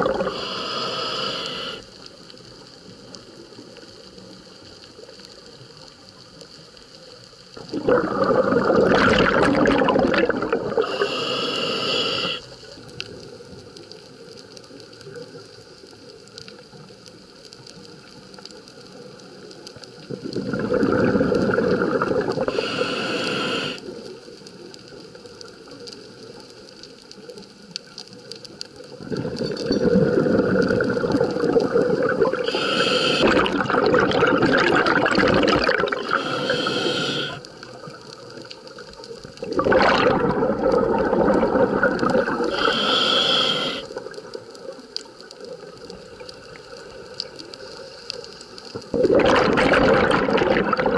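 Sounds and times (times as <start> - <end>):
exhaled bubbles bursting: 0.0 - 0.5, 7.6 - 11.3, 20.1 - 22.6, 29.0 - 37.9, 39.3 - 44.2, 48.8 - 50.9
scuba regulator breathing underwater: 0.0 - 2.0, 7.6 - 12.6, 20.3 - 24.0, 29.0 - 37.6, 39.4 - 44.2.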